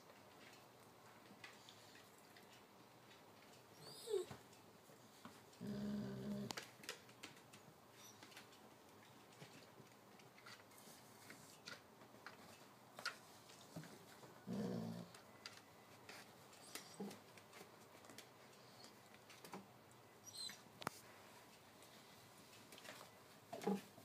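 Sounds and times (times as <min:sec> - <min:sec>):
puppies moving clicks and rustles: 0:00.0 - 0:05.6, 0:06.3 - 0:24.0
dog growling: 0:05.6 - 0:06.6, 0:14.4 - 0:15.2.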